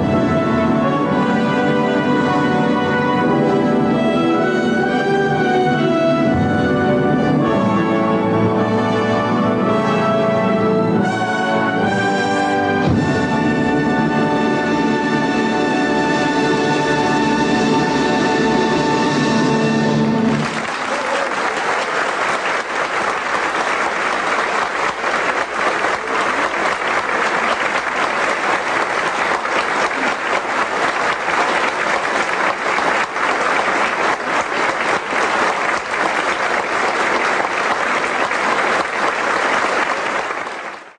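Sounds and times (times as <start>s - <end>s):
orchestra chord: 0.0s - 20.7s
audience applause: 20.2s - 40.9s.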